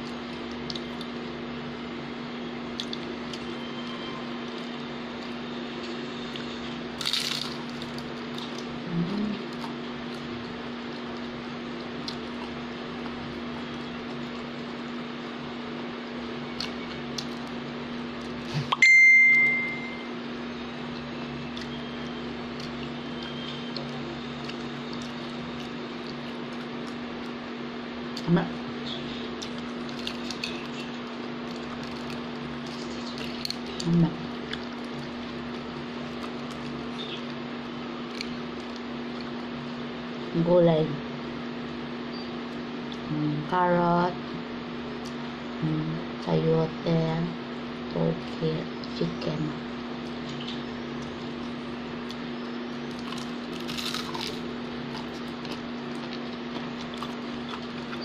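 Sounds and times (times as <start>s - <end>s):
steady hum: 0.0s - 58.0s
person chewing crunchy food: 4.4s - 15.0s, 22.4s - 27.5s, 29.1s - 39.5s, 50.0s - 58.0s
person humming: 8.8s - 9.4s.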